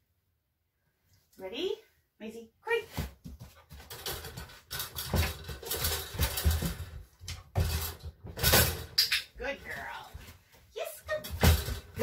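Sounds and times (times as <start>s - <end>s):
knocks and thumps: 2.9s - 9.1s, 11.1s - 12.0s
wire crate door rattling: 3.9s - 7.0s, 7.6s - 9.1s.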